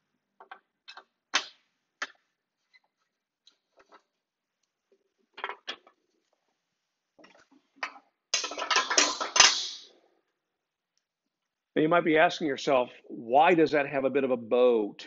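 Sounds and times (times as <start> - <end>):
plastic clattering on metal table: 7.2 - 9.8.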